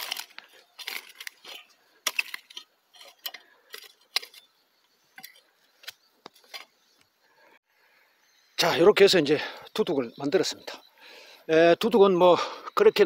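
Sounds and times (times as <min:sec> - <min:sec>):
rake scraping through stony soil: 0:00.0 - 0:06.8.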